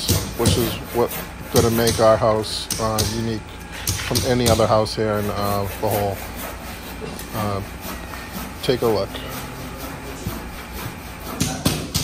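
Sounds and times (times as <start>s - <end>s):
sharp knocks: 10.9s - 12.0s.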